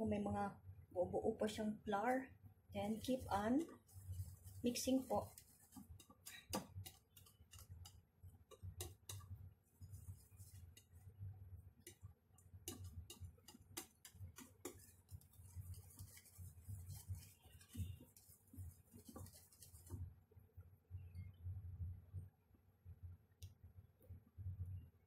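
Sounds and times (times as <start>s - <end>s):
whisk clicking against bowl: 3.0s - 11.0s, 11.8s - 20.0s.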